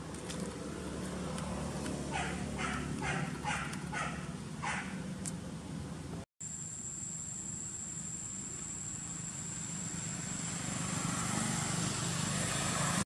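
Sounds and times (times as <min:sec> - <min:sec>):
thin high whine: 0:06.4 - 0:12.9.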